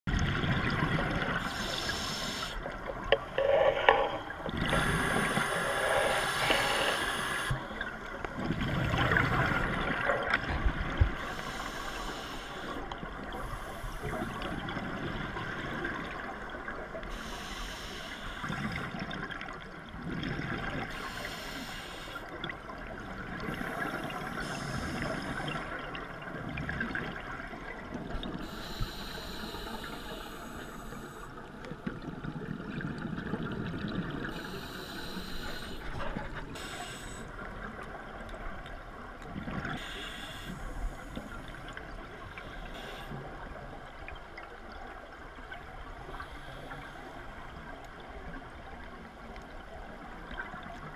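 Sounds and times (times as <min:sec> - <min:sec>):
regulator bubbles gurgling: 0:00.1 - 0:11.5, 0:18.3 - 0:28.6, 0:29.7 - 0:40.0.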